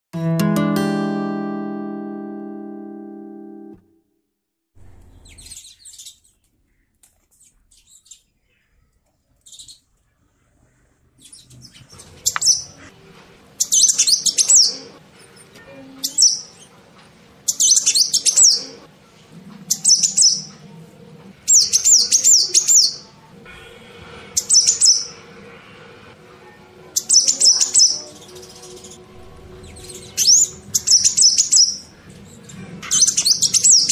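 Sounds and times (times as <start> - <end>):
sparrows chirping: 4.8 - 10.0, 10.8 - 12.9, 13.6 - 16.8, 17.5 - 18.8, 19.7 - 20.6, 21.5 - 23.1, 24.4 - 25.2, 26.8 - 33.9.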